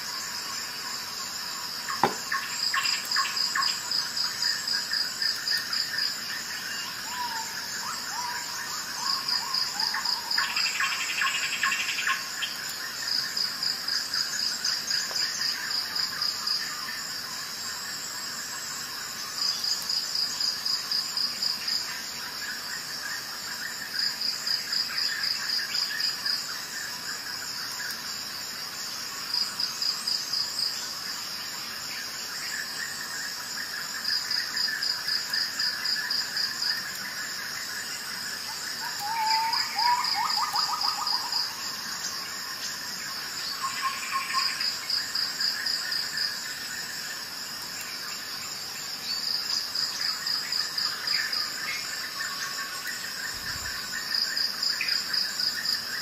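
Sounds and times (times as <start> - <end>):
insect chirping in pulsed trills: 0.0 - 56.0
lower insect chirps: 0.0 - 56.0.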